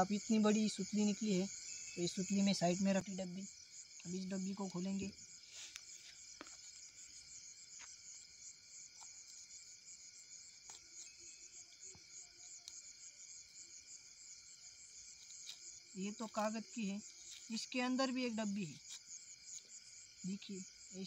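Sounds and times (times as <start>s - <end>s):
crickets chirring: 0.0s - 21.0s.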